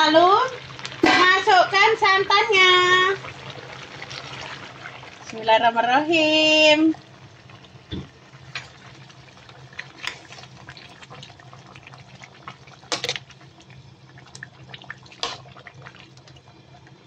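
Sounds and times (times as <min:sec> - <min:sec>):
wet sloshing of stirring: 0:08.4 - 0:11.4.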